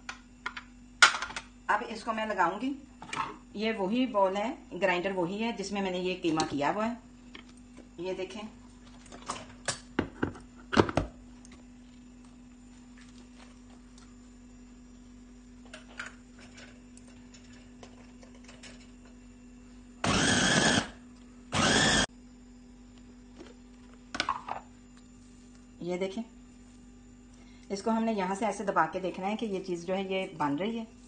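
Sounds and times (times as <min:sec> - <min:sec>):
electric meat chopper grinding: 0:20.0 - 0:21.0, 0:21.6 - 0:22.1.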